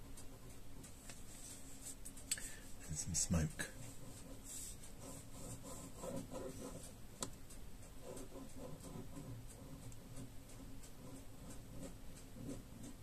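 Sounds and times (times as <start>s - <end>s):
pen scratching on paper: 3.7s - 7.0s, 8.0s - 13.0s.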